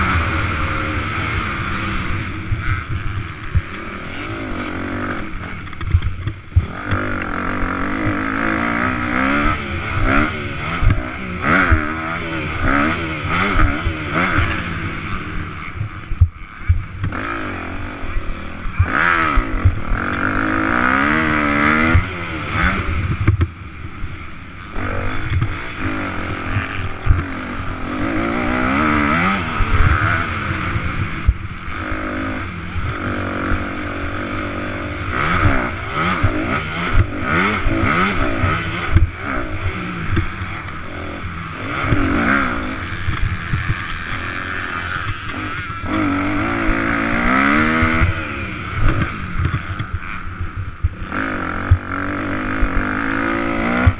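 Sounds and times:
motocross bike engine revving: 0.0 - 53.9.

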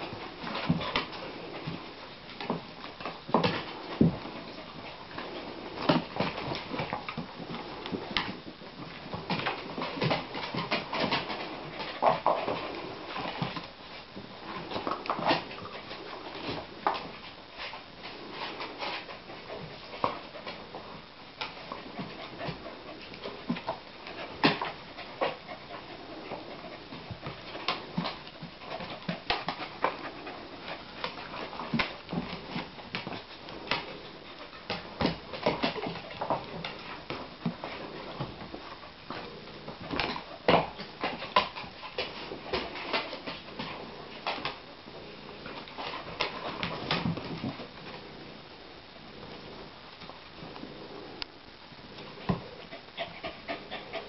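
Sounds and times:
dogs growling while playing: 52.0 - 54.0.

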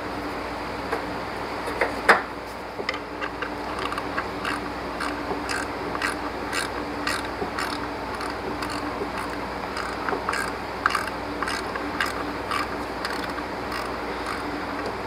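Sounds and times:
socket ratchet ticking: 3.2 - 14.9.

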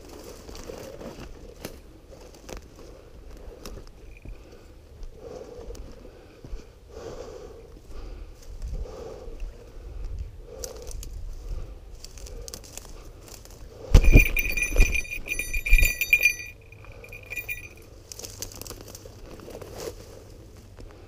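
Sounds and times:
small bells jingling: 4.0 - 4.5, 13.9 - 17.9
heavy thumps: 13.9 - 17.7.

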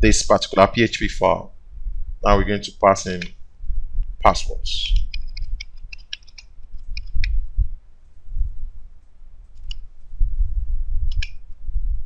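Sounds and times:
low rumble: 1.5 - 2.6, 7.2 - 12.0
keyboard keystrokes: 5.0 - 7.4.

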